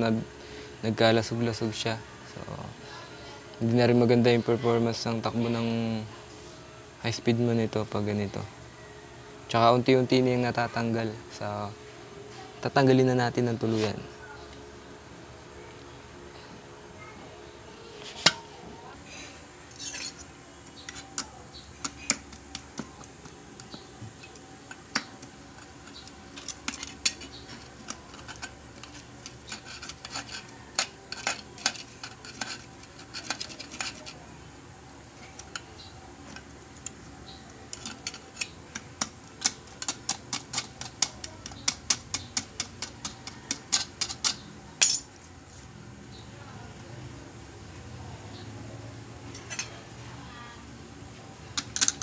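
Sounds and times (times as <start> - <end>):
knife scraping metal plate: 19.7 - 34.2, 37.6 - 45.1.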